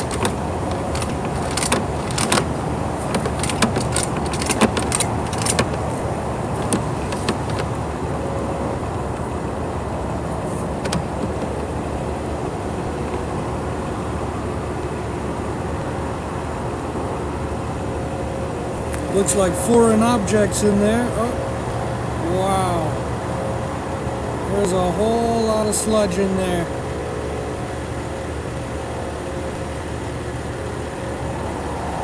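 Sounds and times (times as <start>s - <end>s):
light metallic clicks and rattles: 0.0s - 7.8s, 10.4s - 11.8s
low engine rumble: 0.0s - 32.0s.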